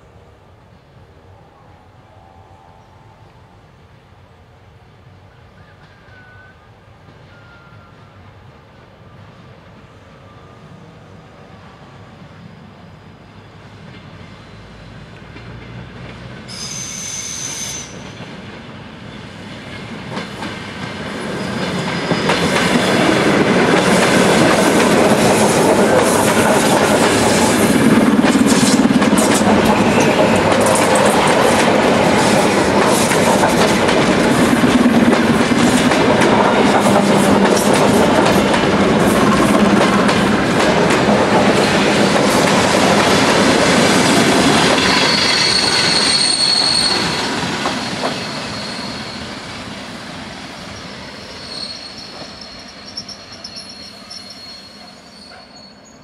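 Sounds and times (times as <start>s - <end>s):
train rolling noise: 0.0s - 56.0s
high wheel squeal: 16.5s - 18.2s, 21.4s - 23.2s, 29.6s - 31.2s, 44.9s - 49.4s, 50.5s - 56.0s.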